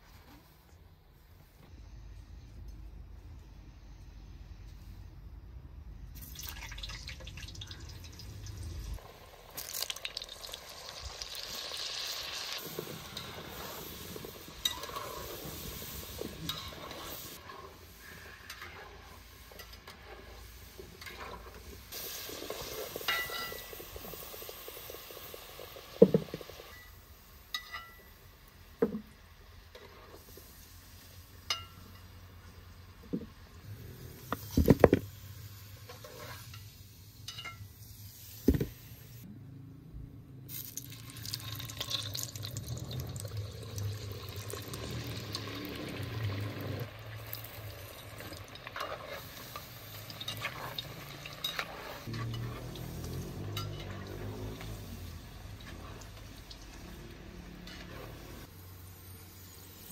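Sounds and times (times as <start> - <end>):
utensils stirring in a pot: 9.6 - 26.9, 27.5 - 28.2, 29.7 - 32.6, 35.8 - 37.7, 44.1 - 58.6.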